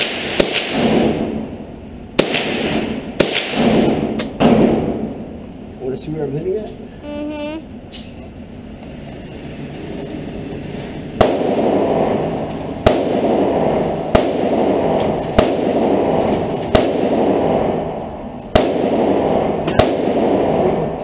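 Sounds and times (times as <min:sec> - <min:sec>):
echoing gunshots: 0:00.0 - 0:05.4, 0:11.2 - 0:21.0.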